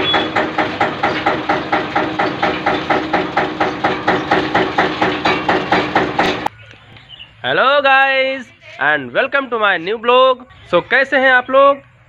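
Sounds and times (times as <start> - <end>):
mill machinery fast knocking: 0.0 - 6.5.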